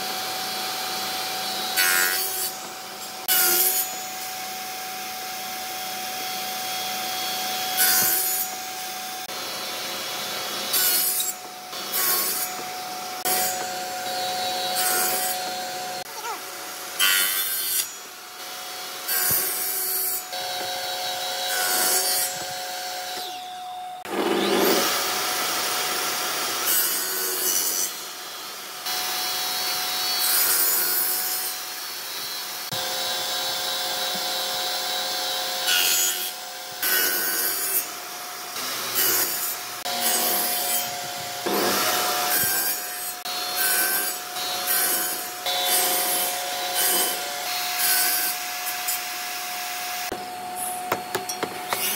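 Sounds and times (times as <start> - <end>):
saw cutting wood: 0.0 - 51.9
table saw blade whine: 0.0 - 51.9.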